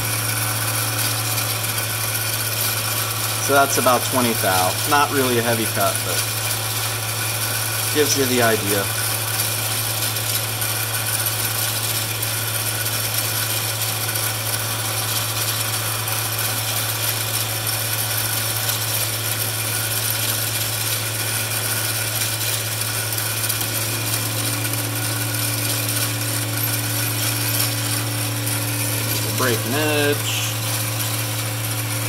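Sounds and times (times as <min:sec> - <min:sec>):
lathe motor and gear hum: 0:00.0 - 0:32.0.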